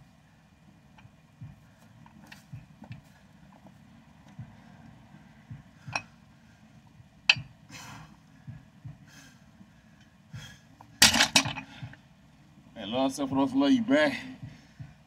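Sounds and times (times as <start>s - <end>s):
low steady rumble: 0.0s - 15.0s
dumbbells clicking: 7.2s - 7.6s.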